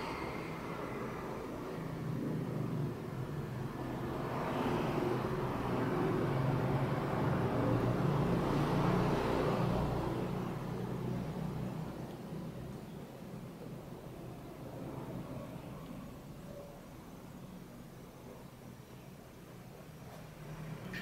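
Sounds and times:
passing vehicle engine rumble: 0:00.0 - 0:16.4.

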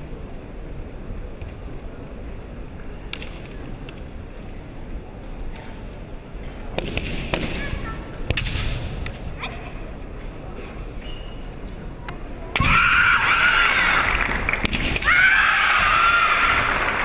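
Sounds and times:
arena crowd noise: 0:00.0 - 0:17.0
bamboo sword strikes cracking: 0:08.3 - 0:09.2.

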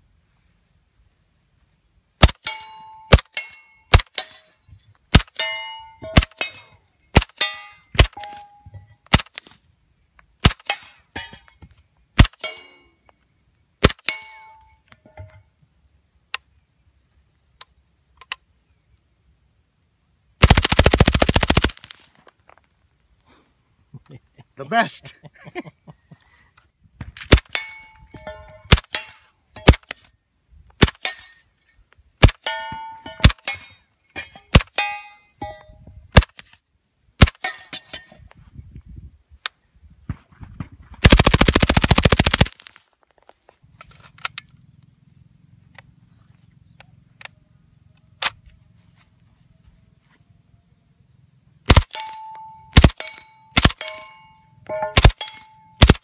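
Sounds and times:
full-auto gunfire burst: 0:20.4 - 0:22.0, 0:41.0 - 0:42.7, 0:51.7 - 0:52.0, 0:52.8 - 0:53.8, 0:55.0 - 0:56.0
suppressed gunshots: 0:51.7 - 0:52.2, 0:52.8 - 0:54.1, 0:54.8 - 0:56.0.

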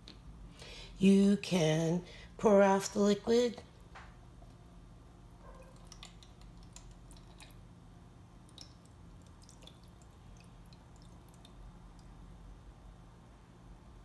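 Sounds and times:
liquid dripping: 0:05.4 - 0:12.5
wet squishy clicks: 0:05.6 - 0:07.6.

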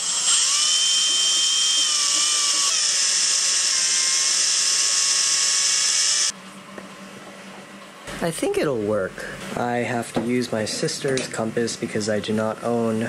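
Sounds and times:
drill bit boring into wood: 0:00.0 - 0:06.3
drill whining: 0:00.0 - 0:06.3.

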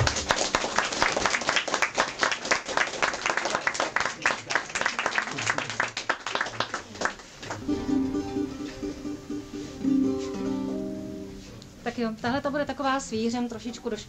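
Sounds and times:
small audience clapping: 0:00.0 - 0:08.0.

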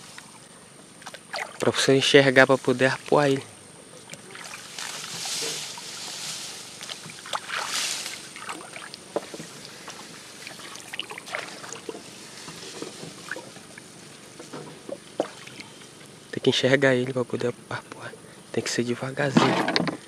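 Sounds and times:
water swishing: 0:01.0 - 0:03.2, 0:03.9 - 0:16.3
water dripping: 0:06.8 - 0:14.0.

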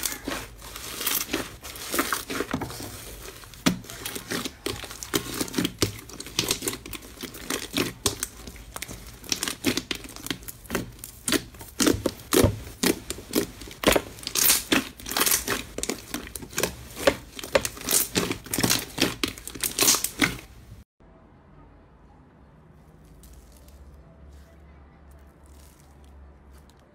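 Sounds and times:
slime crackling pops: 0:00.0 - 0:20.5.

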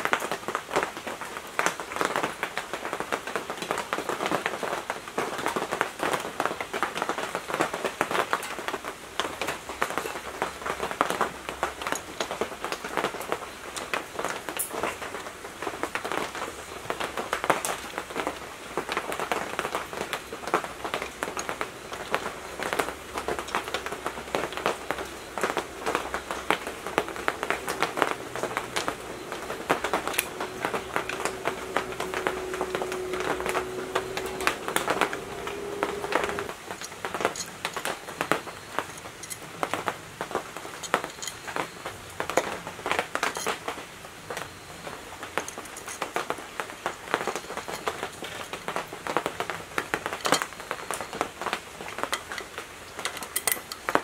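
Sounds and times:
steady hum: 0:20.1 - 0:36.6.

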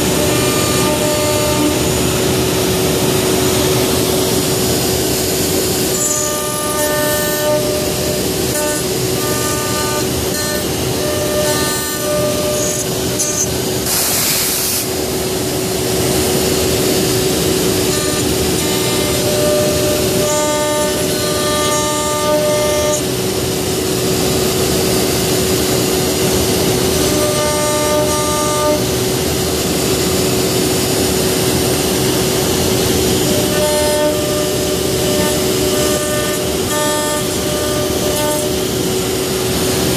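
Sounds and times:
router spindle whining: 0:00.0 - 0:13.9, 0:14.9 - 0:39.9
end mill cutting wood: 0:00.0 - 0:14.0, 0:14.8 - 0:39.9
higher machine tones: 0:00.0 - 0:14.0, 0:14.9 - 0:39.9
brief hiss: 0:13.9 - 0:14.9.

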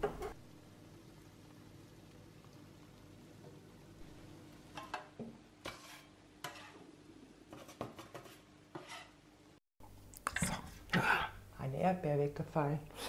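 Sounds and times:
faint steady hum: 0:00.0 - 0:04.9
metal spatula scraping baking tray: 0:05.6 - 0:06.9, 0:07.5 - 0:09.2.

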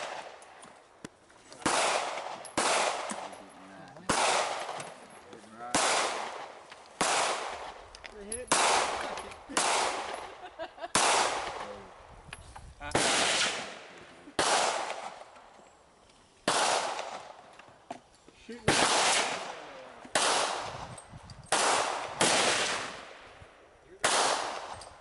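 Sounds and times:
fainter distant gunshots: 0:00.0 - 0:00.4, 0:01.6 - 0:03.3, 0:04.0 - 0:05.0, 0:05.6 - 0:07.8, 0:08.5 - 0:12.0, 0:12.9 - 0:15.4, 0:16.4 - 0:17.4, 0:18.6 - 0:20.9, 0:21.5 - 0:23.4, 0:24.0 - 0:24.8
gunshots echoing: 0:00.0 - 0:00.5, 0:01.6 - 0:07.8, 0:08.4 - 0:12.0, 0:12.9 - 0:15.4, 0:16.4 - 0:17.4, 0:18.6 - 0:23.4, 0:24.0 - 0:25.0.

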